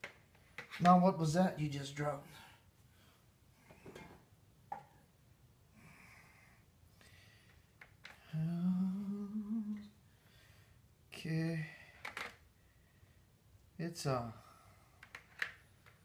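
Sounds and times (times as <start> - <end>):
man humming: 8.3 - 9.9.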